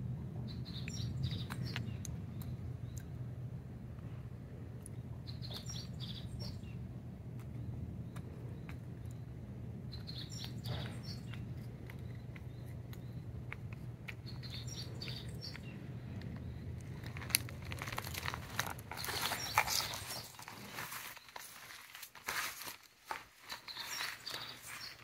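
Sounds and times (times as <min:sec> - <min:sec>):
steady low hum: 0:00.0 - 0:22.8
small birds chirping: 0:00.4 - 0:25.0
rustling and crackling: 0:10.4 - 0:25.0.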